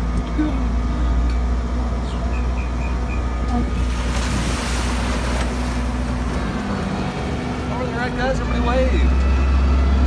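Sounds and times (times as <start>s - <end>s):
water splashing: 3.7s - 7.4s.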